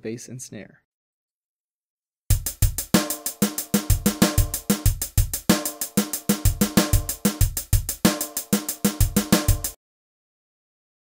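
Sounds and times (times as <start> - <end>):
funk drum-kit beat: 2.3 - 9.8.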